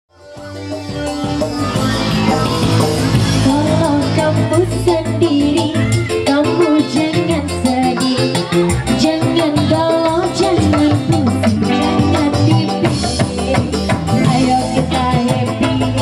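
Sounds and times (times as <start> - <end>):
band with keyboard and beat: 0.1 - 16.0
woman singing into a microphone: 3.4 - 16.0.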